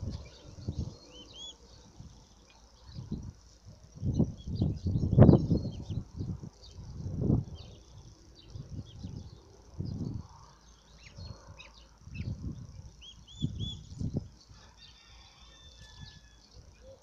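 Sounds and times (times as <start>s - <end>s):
chicks peeping: 0.0s - 2.0s, 11.0s - 15.0s.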